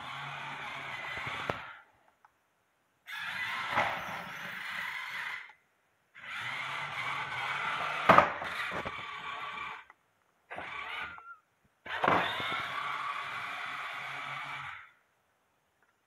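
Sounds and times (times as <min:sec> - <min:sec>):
small robot motors running: 0:00.0 - 0:01.8, 0:06.2 - 0:09.9, 0:10.5 - 0:14.9.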